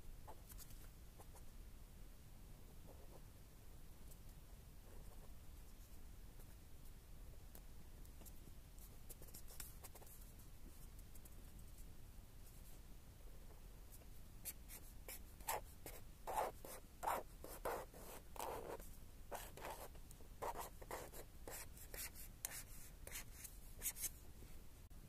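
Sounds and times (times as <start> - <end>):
marker scratching on paper: 9.1 - 10.2, 14.4 - 24.2.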